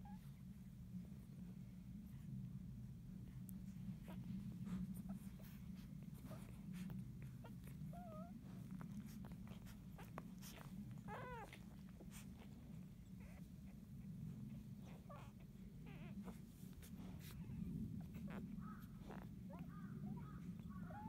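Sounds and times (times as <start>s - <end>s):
steady low hum: 0.0s - 21.0s
puppies squeaking: 14.8s - 16.4s.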